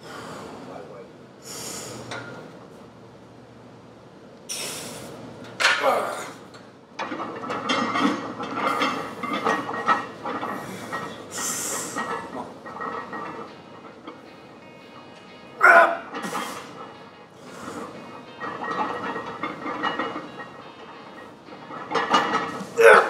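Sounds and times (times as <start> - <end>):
forceful hissing breaths: 0.0 - 0.7, 1.4 - 2.1, 4.5 - 5.3, 10.5 - 12.0
man grunting: 5.8 - 6.4, 15.6 - 16.0, 22.8 - 23.0
metal plates clattering and ringing: 7.0 - 23.0.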